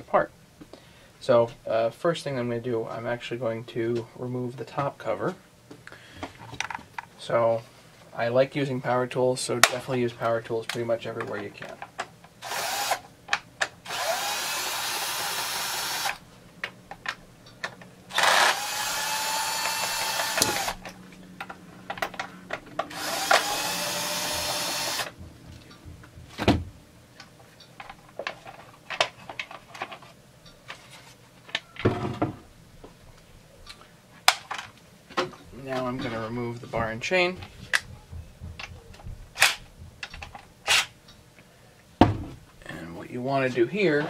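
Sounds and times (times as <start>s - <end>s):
power drill motor whine: 12.4s - 13.0s, 13.8s - 16.2s, 18.1s - 20.9s, 22.9s - 25.2s.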